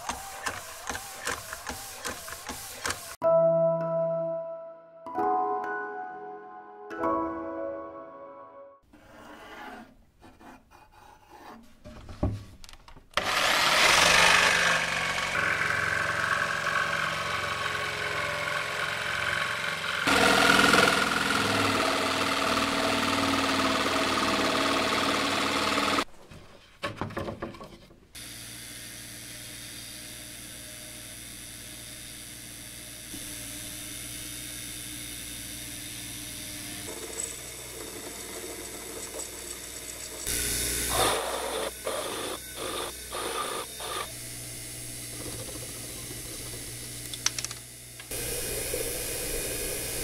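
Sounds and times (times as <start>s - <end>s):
drill bit boring into aluminium: 13.2s - 26.0s, 28.2s - 44.2s
electric jigsaw cutting plywood: 13.2s - 26.1s, 28.2s - 50.0s
metal lathe humming: 13.2s - 26.1s, 28.3s - 50.0s.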